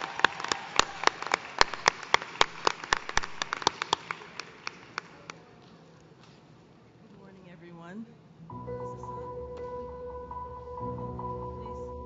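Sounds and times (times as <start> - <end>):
audience applause: 0.0 - 5.4.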